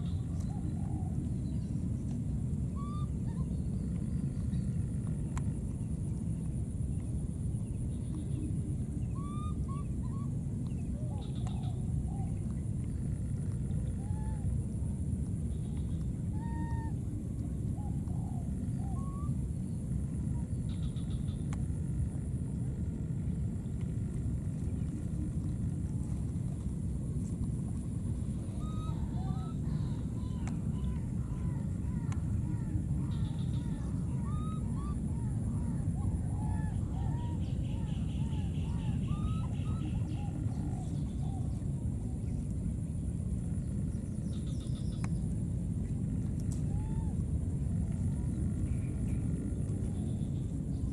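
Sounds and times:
low rumbling background noise: 0.0s - 50.9s
faint bird chirps: 28.5s - 41.6s.

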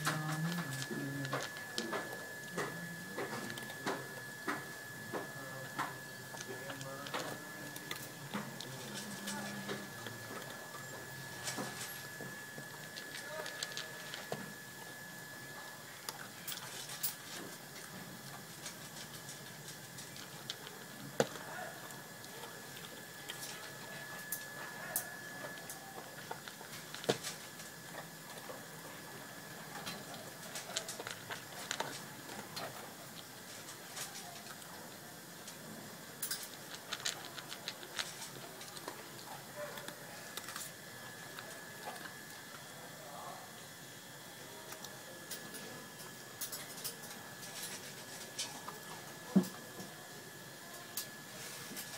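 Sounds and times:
dog crunching food: 0.0s - 15.3s, 15.9s - 42.7s.

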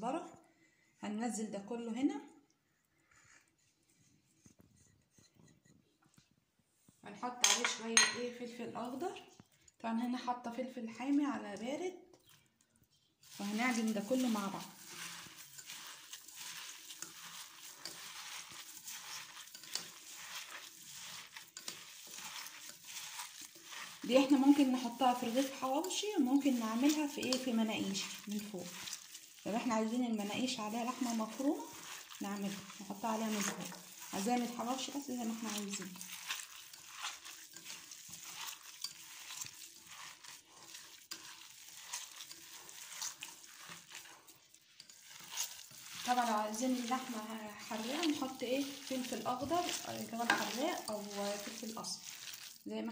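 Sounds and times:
hand squishing minced meat: 13.2s - 52.9s.

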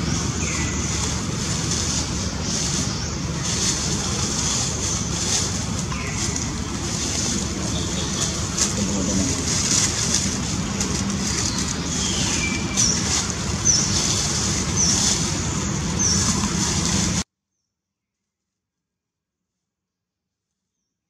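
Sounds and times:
distant road traffic rumble: 0.0s - 17.2s
dry leaves crackling: 0.0s - 17.2s
bird chirping: 1.8s - 17.1s.

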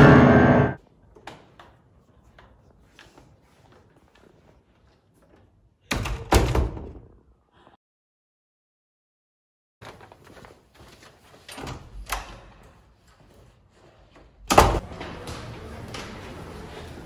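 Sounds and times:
door banging: 0.0s - 0.8s
steady background noise: 12.0s - 17.0s.

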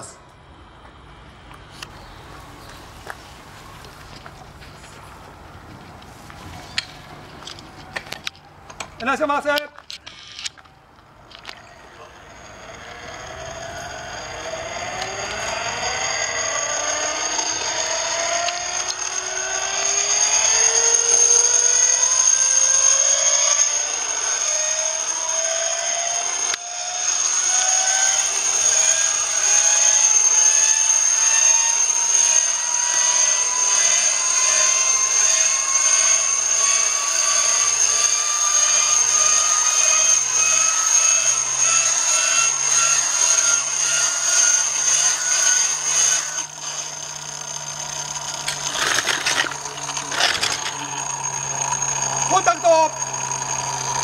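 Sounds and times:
inertia starter flywheel whine: 0.0s - 54.0s.

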